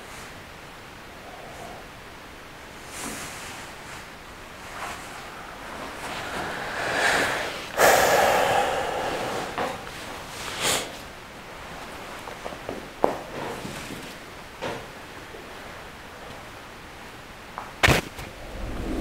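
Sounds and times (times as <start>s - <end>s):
person breathing: 5.2s - 10.0s.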